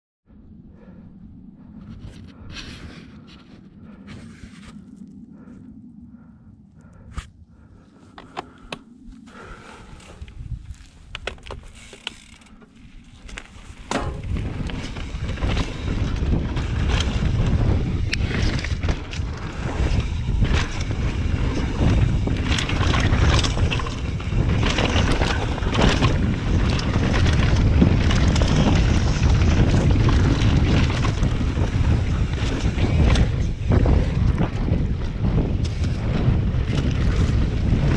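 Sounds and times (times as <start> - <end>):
wind rumbling on microphone: 0.3 - 37.9
bike knocks and rattles: 10.8 - 37.9.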